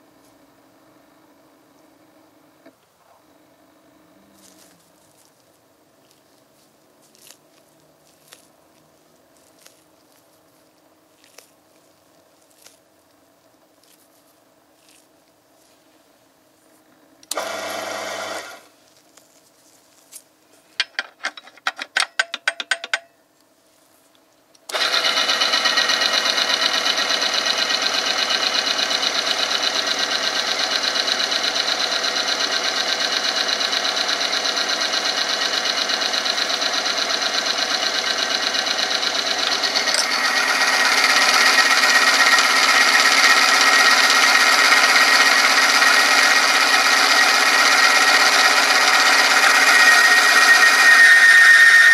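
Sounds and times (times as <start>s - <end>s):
machine motor hum with grinding: 17.2s - 18.7s, 24.7s - 51.9s.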